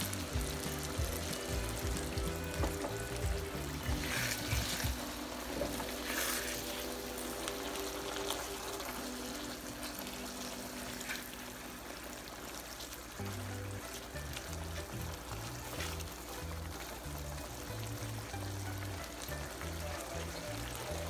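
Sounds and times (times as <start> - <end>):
sauce simmering and bubbling: 0.0 - 21.0
soft background music: 0.0 - 21.0
spatula stirring in wok: 3.2 - 7.3.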